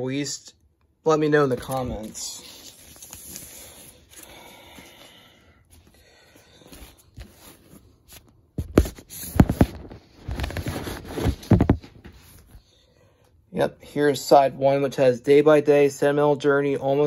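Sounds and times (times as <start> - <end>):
record sleeve rubbing: 6.6 - 12.6
scuffs and knocks on microphone: 8.6 - 12.5.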